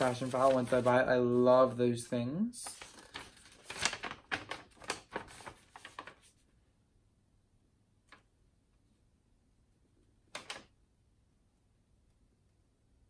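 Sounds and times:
papers and cards rustling: 0:00.0 - 0:01.8, 0:02.6 - 0:06.5.

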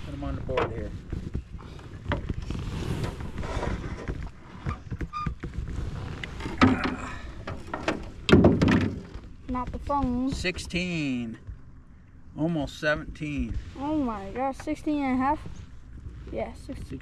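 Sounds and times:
rustling: 0:00.0 - 0:10.6
loud thump: 0:08.3 - 0:09.1.

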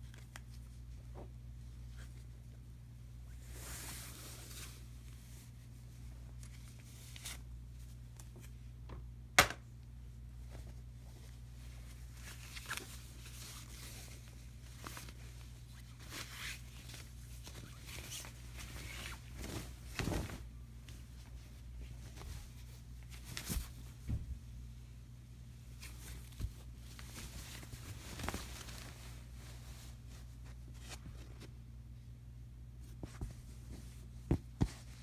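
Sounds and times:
steady low hum: 0:00.0 - 0:35.0
shower curtain rustling: 0:11.9 - 0:20.6, 0:25.8 - 0:30.3.

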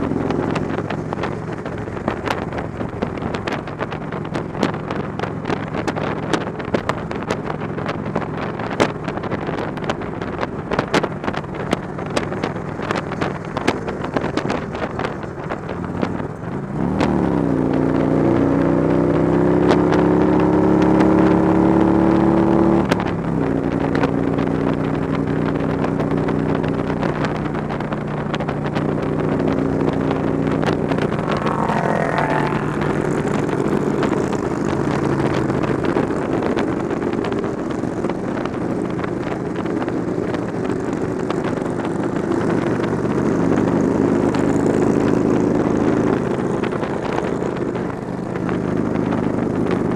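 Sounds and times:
motorcycle engine running: 0:00.0 - 0:49.9
wind rush over microphone: 0:00.0 - 0:49.9
rising whine: 0:30.2 - 0:33.9.

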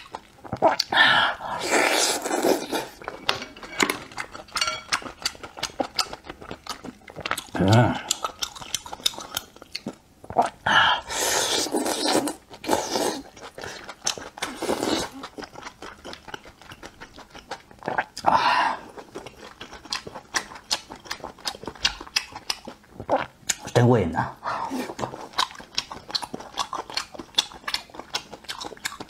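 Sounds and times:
wet chewing and smacking: 0:00.0 - 0:01.0, 0:04.0 - 0:10.6, 0:11.4 - 0:23.8, 0:24.9 - 0:29.0.

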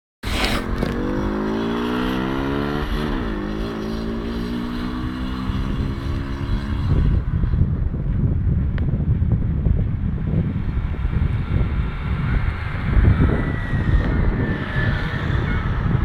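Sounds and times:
wind rumbling on microphone: 0:00.2 - 0:16.0
engine accelerating: 0:00.6 - 0:07.3, 0:10.5 - 0:16.0.

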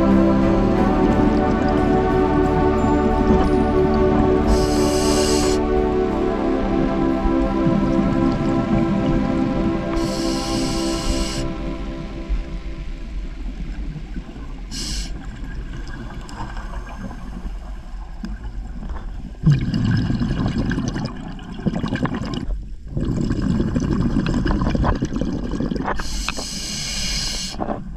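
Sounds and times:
regulator inhalation hiss: 0:04.5 - 0:05.7, 0:10.0 - 0:11.6, 0:14.7 - 0:15.3, 0:26.0 - 0:27.7
gurgling exhaled bubbles: 0:18.4 - 0:26.3.

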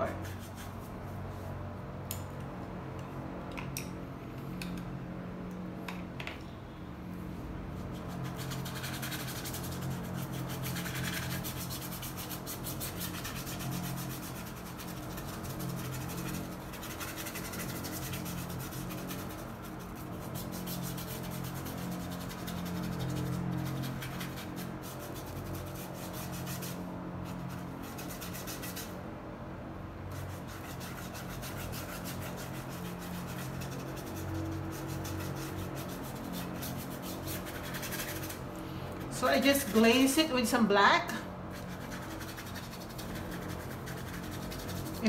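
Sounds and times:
paintbrush scrubbing canvas: 0:00.0 - 0:01.6, 0:07.7 - 0:29.0, 0:30.1 - 0:40.1, 0:41.5 - 0:45.0.

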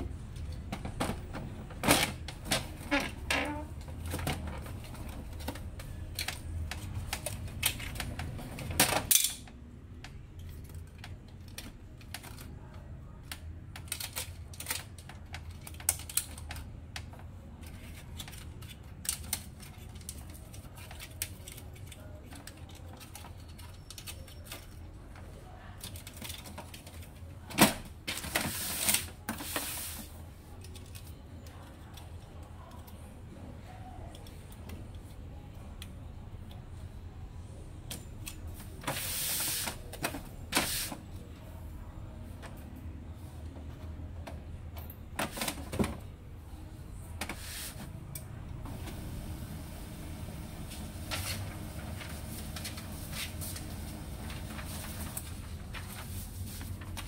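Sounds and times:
rustling and scraping: 0:50.8 - 0:57.0.

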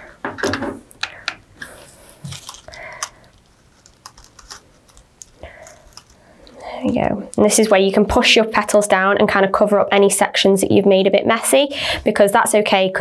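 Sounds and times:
crepe paper crinkling and rustling: 0:01.7 - 0:06.3
small crisp paper clicks: 0:02.2 - 0:06.2.

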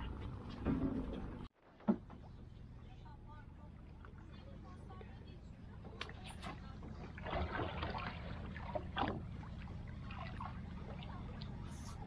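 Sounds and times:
water splashing against boat hull: 0:03.8 - 0:12.0.

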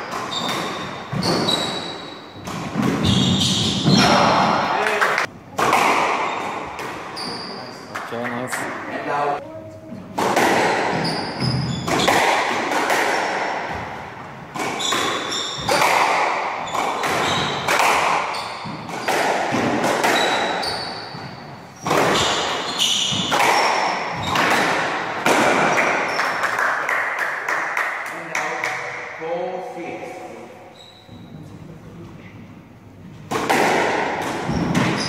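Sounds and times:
shoes squeaking on wooden floor: 0:00.0 - 0:04.2, 0:06.2 - 0:07.9, 0:10.9 - 0:12.1, 0:14.6 - 0:15.8, 0:16.6 - 0:17.7, 0:20.0 - 0:24.6, 0:34.4 - 0:35.0
squash ball knocking: 0:10.2 - 0:20.5.

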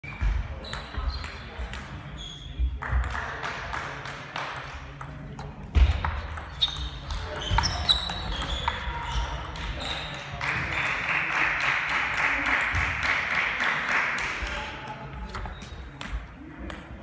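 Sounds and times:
table tennis balls ticking: 0:00.6 - 0:02.1, 0:04.6 - 0:11.0.

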